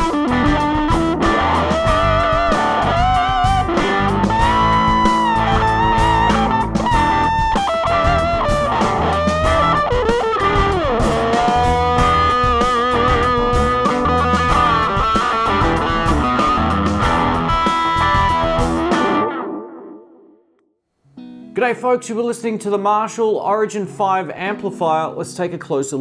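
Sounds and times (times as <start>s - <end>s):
bass and drums backing: 0.0s - 19.2s
electric guitar lead: 0.0s - 20.4s, 21.1s - 21.8s.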